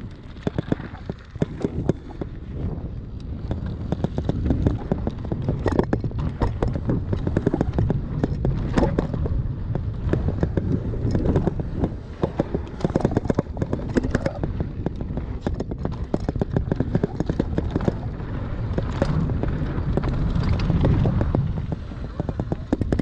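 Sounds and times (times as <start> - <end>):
bike clattering over bumpy ground: 0.0 - 23.0
wind rumble on microphone: 0.0 - 23.0.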